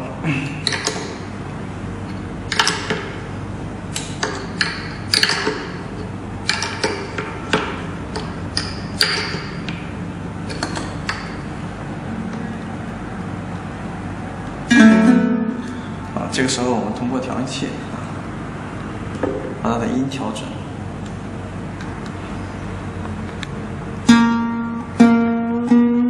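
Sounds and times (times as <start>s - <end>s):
string winder clicks: 2.5s - 3.1s, 4.0s - 9.8s
ukulele string plucked: 12.0s - 14.0s, 14.6s - 16.0s, 24.0s - 26.0s.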